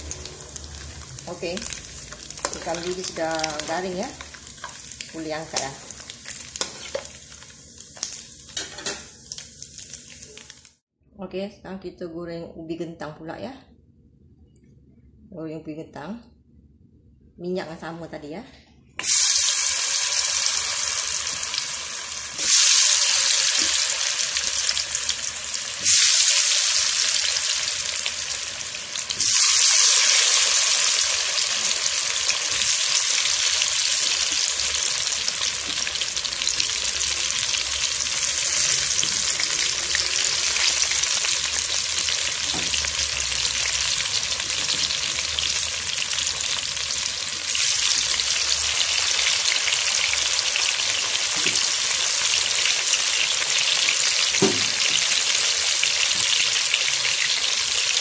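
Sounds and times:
potatoes deep-frying in oil: 0.0 - 10.8, 19.0 - 58.0.

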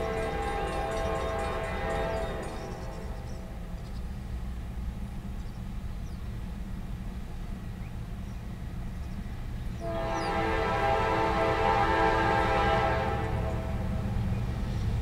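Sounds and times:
locomotive air horn: 0.0 - 3.6, 9.8 - 14.1
freight train rumbling: 0.0 - 15.0.

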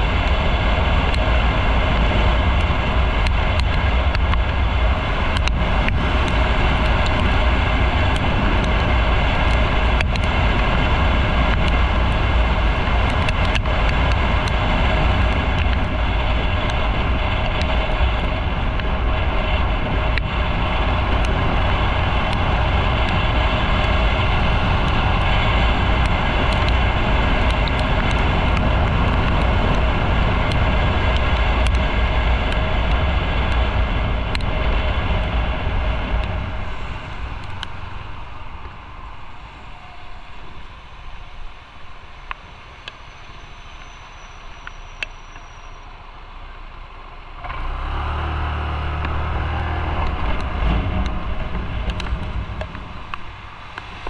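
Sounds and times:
motorcycle engine running: 0.0 - 38.6
wind noise: 0.0 - 54.0.

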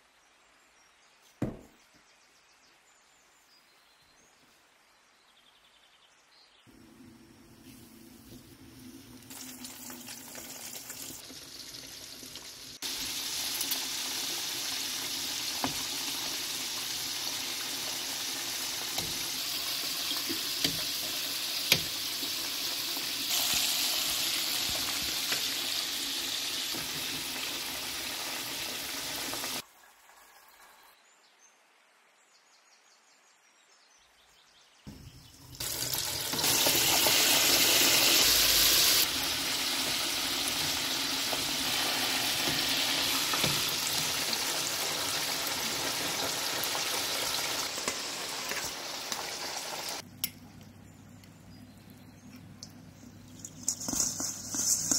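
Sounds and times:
chicken deep-frying in oil: 6.7 - 31.0, 34.9 - 50.0, 52.5 - 54.9.

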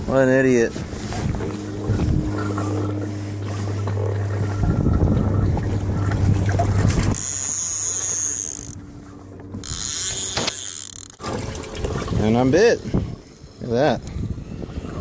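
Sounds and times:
wind buffeting microphone: 0.0 - 7.4, 11.2 - 15.0
steady low hum: 0.0 - 15.0.

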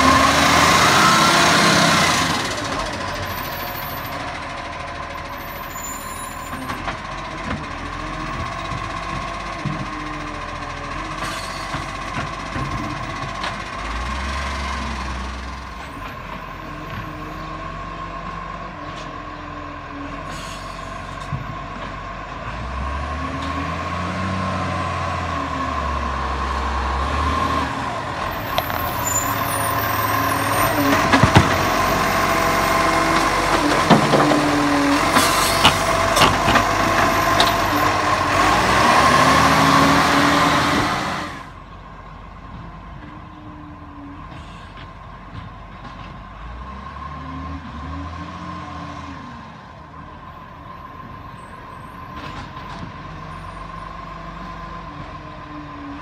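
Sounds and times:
garbage truck diesel engine: 0.0 - 56.0.

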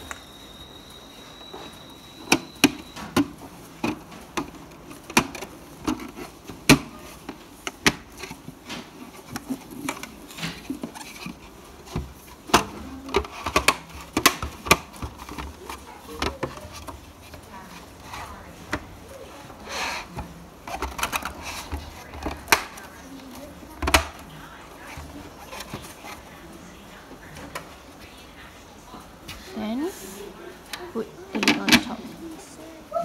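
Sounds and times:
plastic parts clicking and knocking: 2.2 - 18.1, 20.0 - 26.2, 30.7 - 32.2.

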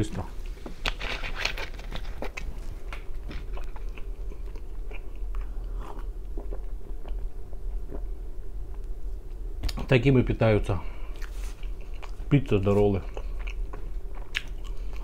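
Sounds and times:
man chewing: 0.4 - 8.9, 11.0 - 12.3, 13.0 - 15.0
mouth clicks and smacks: 14.2 - 14.8.

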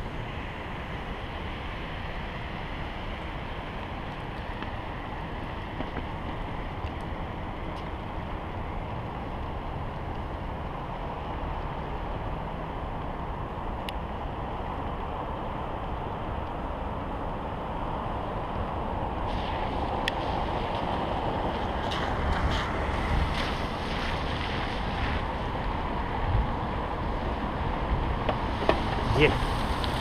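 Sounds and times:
wind rushing on microphone: 0.0 - 30.0.

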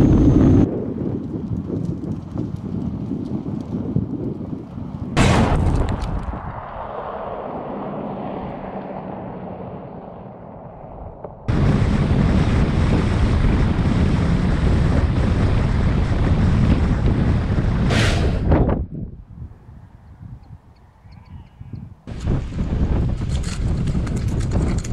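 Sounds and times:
wind buffeting microphone: 0.0 - 24.9
car engine hum: 6.8 - 11.9.

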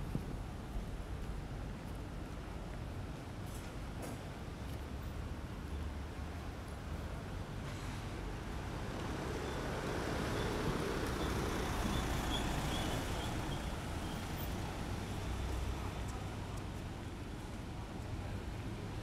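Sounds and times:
passing vehicle engine and tyres: 8.0 - 15.8.

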